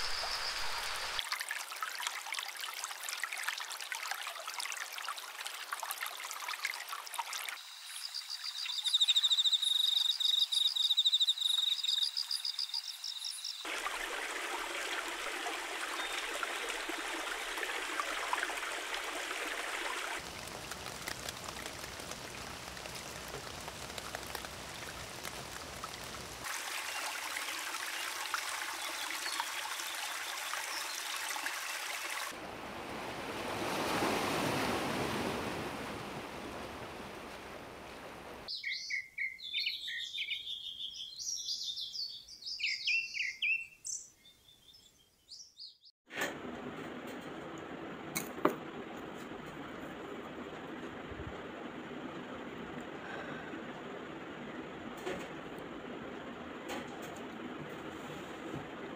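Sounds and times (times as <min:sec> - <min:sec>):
stream flowing over rocks: 0:00.0 - 0:07.6, 0:13.6 - 0:32.4
birds chirping: 0:07.7 - 0:13.7.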